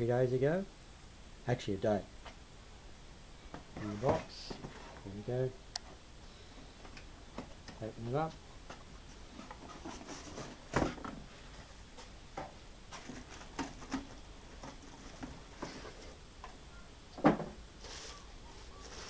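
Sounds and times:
plastic bag rustling: 0:17.8 - 0:19.0.

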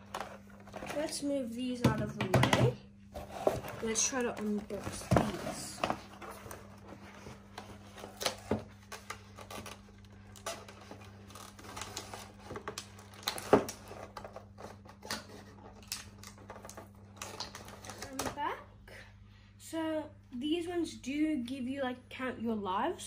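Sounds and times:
cardboard rustling: 0:03.1 - 0:18.4.

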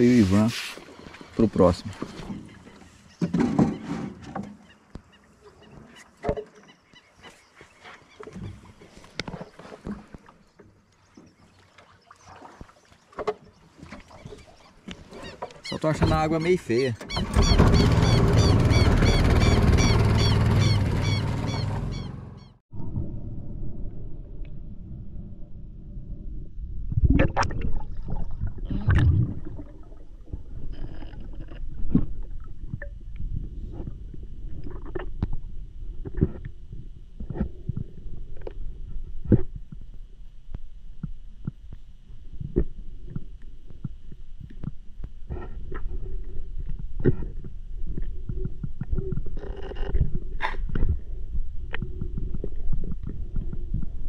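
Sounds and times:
muffled water sloshing and splashing: 0:00.0 - 0:20.0, 0:23.8 - 0:54.0
water splashing: 0:08.7 - 0:16.5
low rumble: 0:17.5 - 0:39.3.

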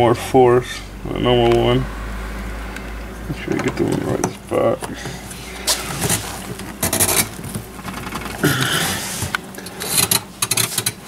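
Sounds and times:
plastic scraping and rubbing: 0:03.4 - 0:11.0.

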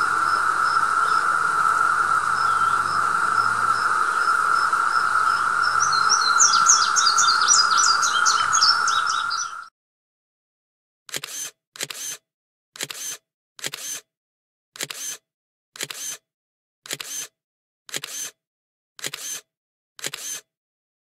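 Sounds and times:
camera shutter click: 0:11.1 - 0:12.2, 0:12.8 - 0:14.0, 0:14.8 - 0:15.2, 0:15.8 - 0:16.2, 0:16.9 - 0:17.3, 0:17.9 - 0:18.3, 0:19.0 - 0:19.4, 0:20.0 - 0:20.4.

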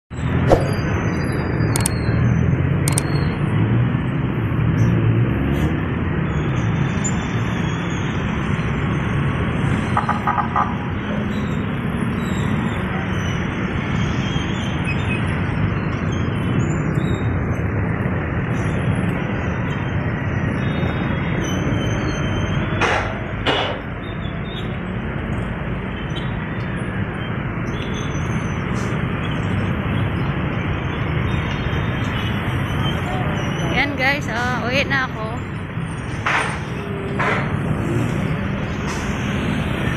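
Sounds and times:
congested road traffic rumble: 0:00.1 - 0:39.9
short rushes of noise: 0:00.4 - 0:01.0.

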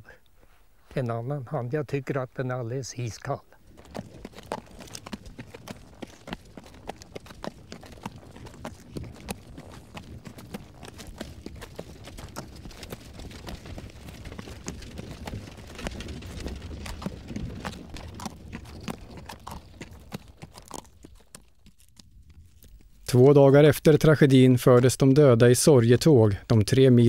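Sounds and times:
horse hooves clip-clopping: 0:03.6 - 0:26.1.

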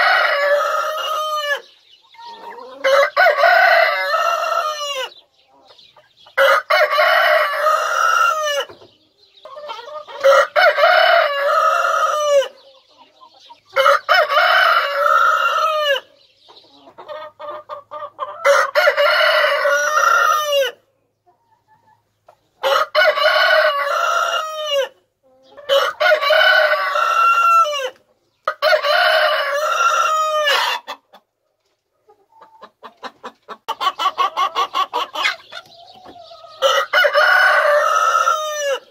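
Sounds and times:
hens clucking softly: 0:00.0 - 0:38.9
rooster crowing: 0:02.7 - 0:05.1, 0:10.2 - 0:12.5, 0:18.4 - 0:20.8, 0:22.6 - 0:24.9, 0:25.7 - 0:28.0, 0:36.6 - 0:38.9.

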